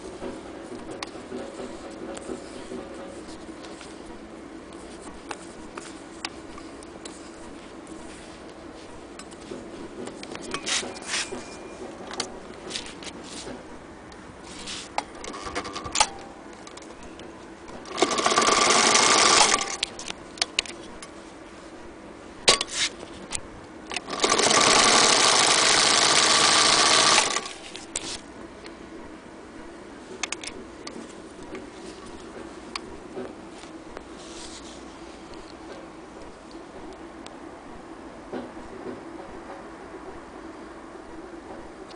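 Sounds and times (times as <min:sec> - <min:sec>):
sewing machine stitching: 0:15.2 - 0:16.0, 0:17.8 - 0:19.9, 0:23.9 - 0:27.7.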